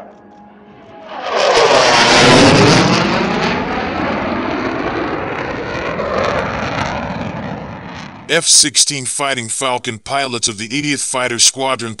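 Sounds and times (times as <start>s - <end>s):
jet engine roar flying past: 0.0s - 8.4s.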